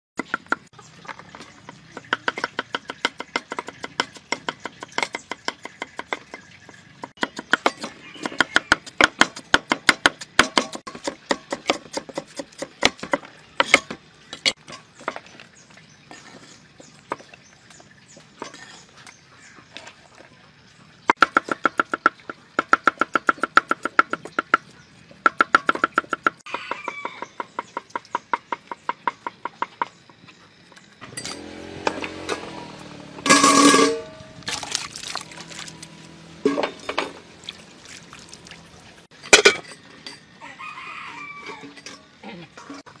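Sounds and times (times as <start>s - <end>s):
cleavers chopping on wooden blocks: 0.2s - 15.3s, 21.1s - 30.2s.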